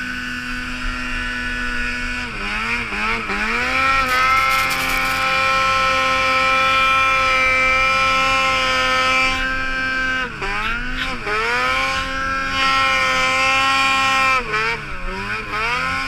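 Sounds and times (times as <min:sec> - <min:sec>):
snowmobile engine revving: 0:00.0 - 0:16.0.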